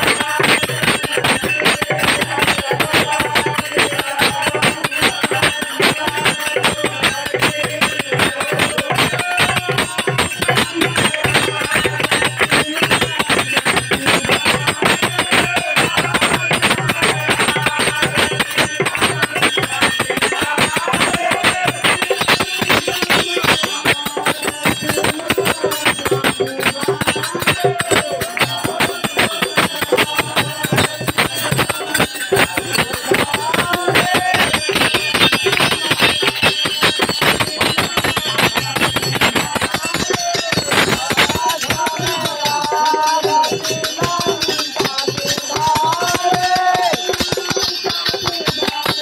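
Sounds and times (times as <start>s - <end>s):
bell rung rapidly: 0.0s - 49.0s
group devotional singing: 0.0s - 49.0s.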